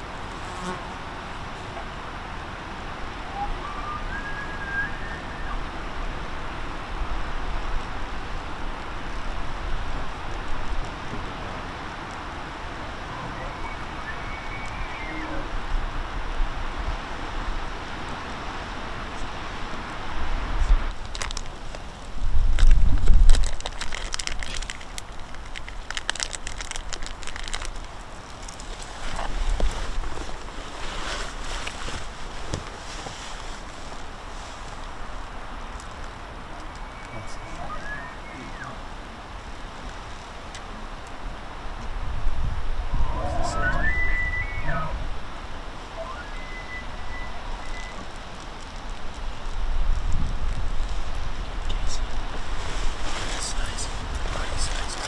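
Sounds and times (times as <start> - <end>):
steady hiss and low rumble: 0.0 - 55.0
distant elk bugling: 3.2 - 5.8, 12.8 - 15.6, 36.6 - 39.0, 42.8 - 48.1
wind on microphone: 22.0 - 23.9, 41.2 - 55.0
heavy low rumble: 41.9 - 48.0.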